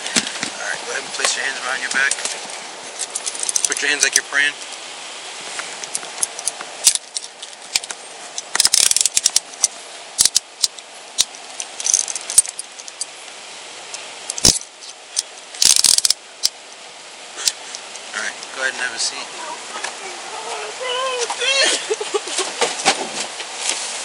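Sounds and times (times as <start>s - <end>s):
handcuffs ratchet clicking: 6.2s - 13.1s, 15.2s - 16.6s.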